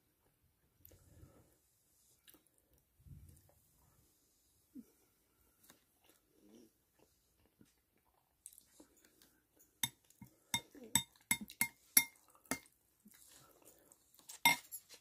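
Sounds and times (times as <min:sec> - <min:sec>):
faint chewing: 0:02.1 - 0:03.9, 0:04.8 - 0:15.0
metal spoon clinking on tray: 0:11.0 - 0:12.6, 0:14.5 - 0:14.8.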